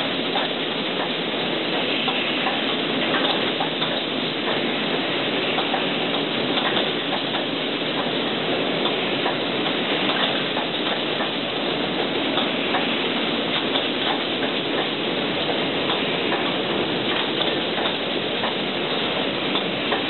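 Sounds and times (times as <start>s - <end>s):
conveyor chain clicks: 15.9s - 20.0s.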